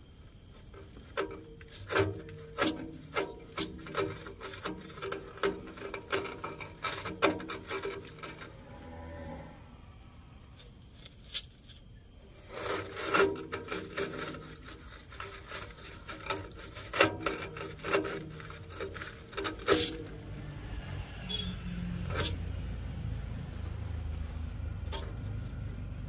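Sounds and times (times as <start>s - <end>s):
plastic canister scraping on fitting: 0.6s - 8.8s, 12.2s - 23.1s.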